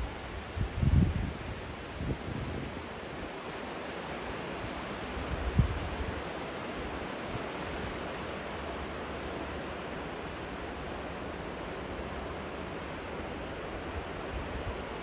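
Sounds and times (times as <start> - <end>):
turbulent river rushing: 0.0 - 15.0.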